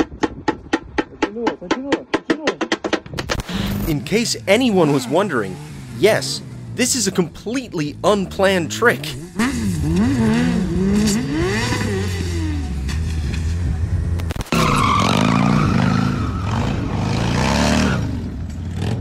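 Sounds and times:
tire screeching: 3.3s - 19.0s
motorcycle engine revving: 3.4s - 19.0s
motorcycle engine at high revs: 3.5s - 19.0s.

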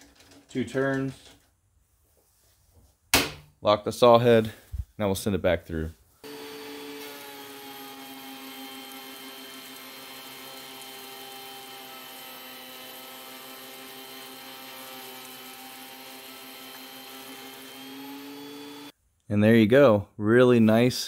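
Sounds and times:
thickness planer motor whine: 6.2s - 18.9s.

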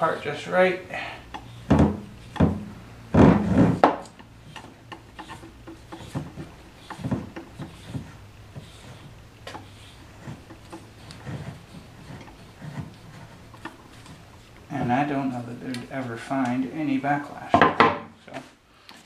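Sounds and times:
lead screw scraping on wooden bench: 4.0s - 15.2s.

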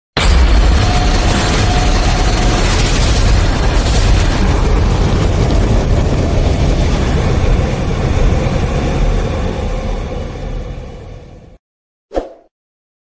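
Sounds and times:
sharp hit: 0.2s - 8.2s
deep rumbling explosion roar: 0.2s - 11.6s.

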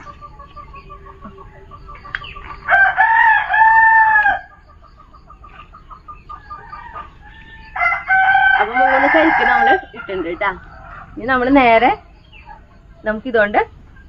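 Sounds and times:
rooster crowing: 2.5s - 4.7s, 6.4s - 11.4s.

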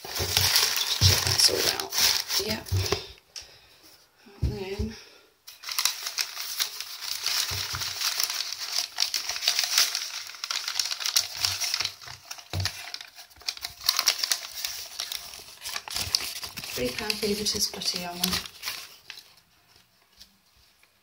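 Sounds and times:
newspaper crinkling: 0.0s - 3.1s, 5.5s - 21.0s.

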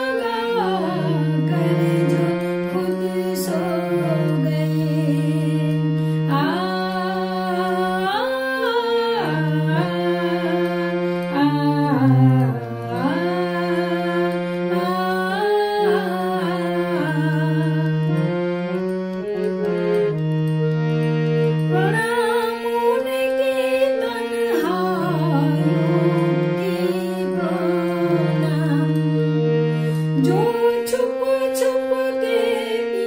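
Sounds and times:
woman singing devotional song: 0.0s - 20.1s, 21.6s - 33.0s
harmonium chords: 0.0s - 33.0s.

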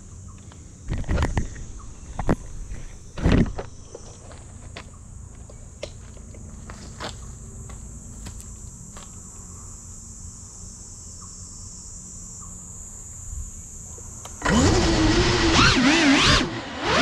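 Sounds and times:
insects hissing: 0.0s - 17.0s
quadcopter motors whining: 12.0s - 17.0s.

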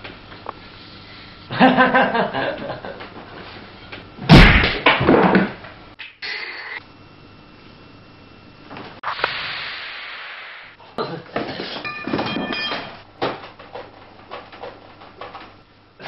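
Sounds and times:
loud rushing hiss: 9.0s - 10.8s
glass clink: 11.8s - 13.0s.

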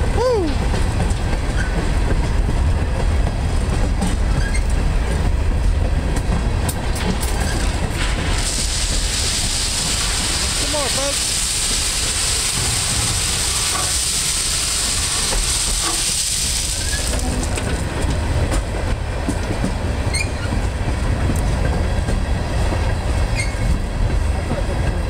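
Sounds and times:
freight train rumbling past: 0.0s - 25.0s
wheels clicking on rails: 0.0s - 25.0s
ballast pouring onto track: 8.3s - 17.6s.

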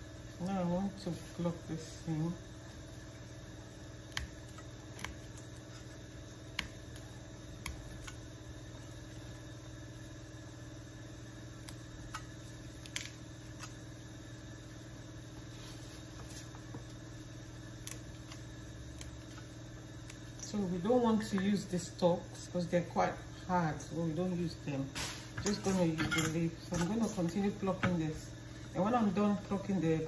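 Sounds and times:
low mechanical hum: 0.0s - 30.0s
leaves snapping off stalks: 11.6s - 13.8s.

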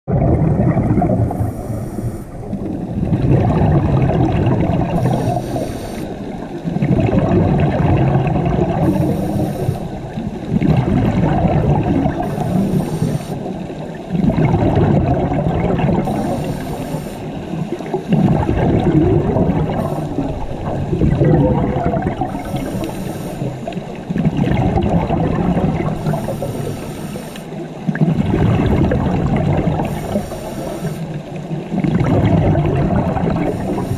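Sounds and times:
rumble of exhaled bubbles: 0.0s - 33.9s
scuba regulator inhale hiss: 1.3s - 2.6s, 4.9s - 6.4s, 8.8s - 10.0s, 12.2s - 13.6s, 16.0s - 17.5s, 19.7s - 20.5s, 22.3s - 23.7s, 26.0s - 27.6s, 29.8s - 31.2s, 33.4s - 33.9s.

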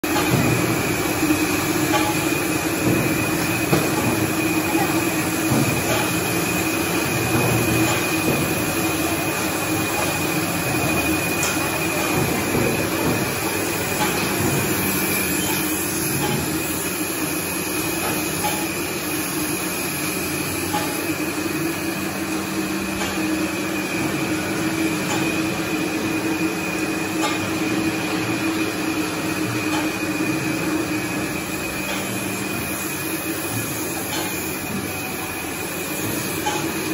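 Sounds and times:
bottling machinery hum: 0.0s - 36.9s.

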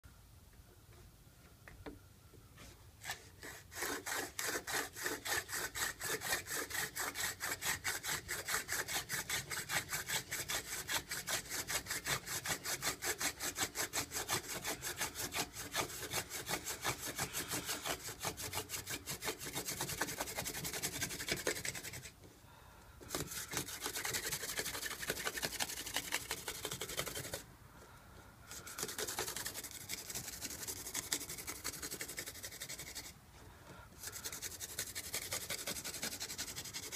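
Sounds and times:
wooden spindle grinding in notch: 3.0s - 22.1s, 23.1s - 27.4s, 28.5s - 33.1s.

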